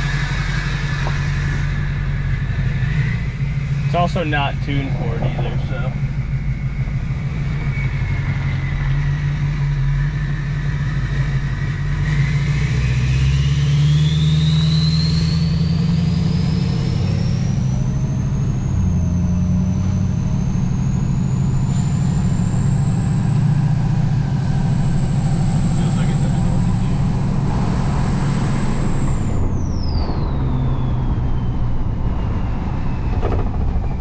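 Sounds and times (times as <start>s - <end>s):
diesel engine accelerating: 0.0s - 34.0s
turbo whistling whine: 0.0s - 34.0s.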